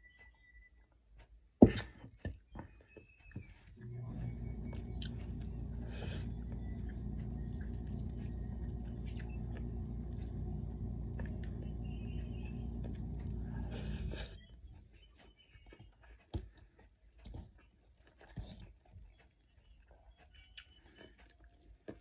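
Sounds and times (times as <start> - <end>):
low hum: 3.8 - 14.8
person chewing food: 4.3 - 11.8, 12.7 - 22.0.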